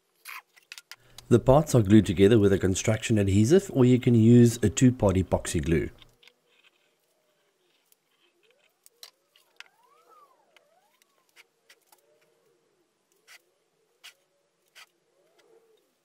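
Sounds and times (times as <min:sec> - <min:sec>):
plastic parts clicking together: 0:00.3 - 0:01.3
plastic squeaking against plastic: 0:06.0 - 0:12.3.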